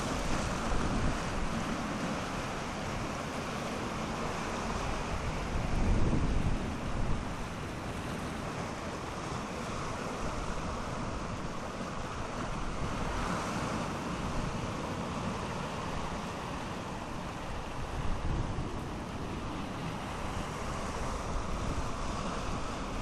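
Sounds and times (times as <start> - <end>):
surf washing over rocks: 0.0 - 23.0
wind buffeting microphone: 0.1 - 1.7, 4.8 - 7.6, 17.3 - 23.0.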